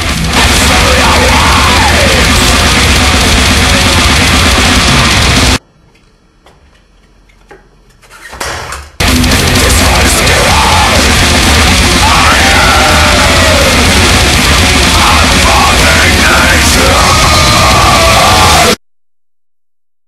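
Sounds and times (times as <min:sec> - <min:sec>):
black metal music: 0:00.0 - 0:05.6, 0:09.0 - 0:18.8
harsh screamed vocals: 0:00.0 - 0:05.6, 0:09.0 - 0:18.8.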